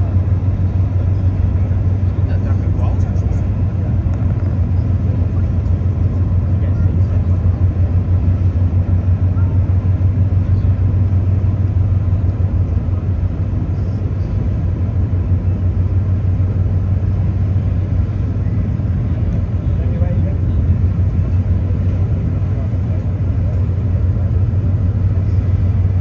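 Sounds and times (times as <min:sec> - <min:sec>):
ferry engines low rumble: 0:00.0 - 0:26.0.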